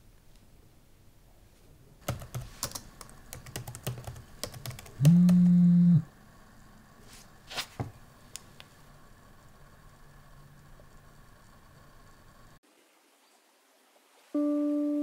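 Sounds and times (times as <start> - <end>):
phone vibrating buzz: 5.0 - 6.1.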